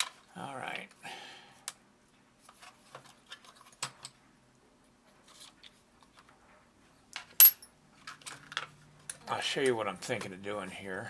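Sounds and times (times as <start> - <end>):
sharp metallic clink: 7.4 - 7.8.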